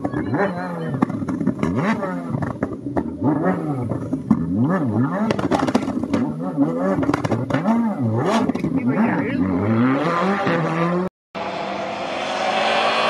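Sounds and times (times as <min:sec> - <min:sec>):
rally car engine revving: 0:00.0 - 0:13.0.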